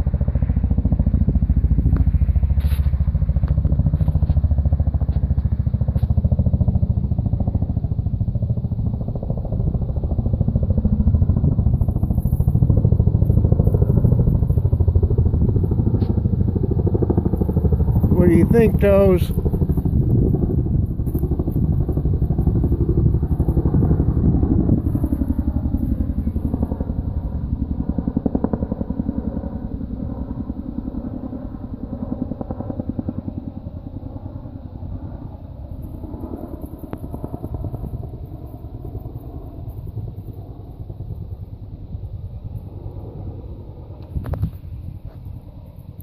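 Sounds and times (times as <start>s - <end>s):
helicopter engine noise: 0.0s - 46.0s
helicopter rotor thudding: 8.8s - 27.3s.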